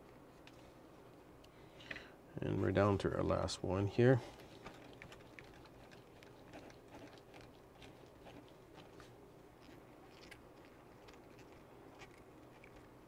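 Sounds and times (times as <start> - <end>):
small clicks and scrapes of handling: 0.0 - 0.8, 4.3 - 12.9.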